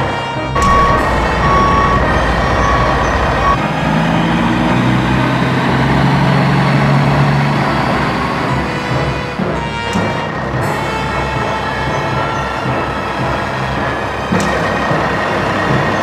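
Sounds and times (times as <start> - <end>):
reverse warning beeps: 0.6 - 3.6
diesel engine running: 0.6 - 16.0.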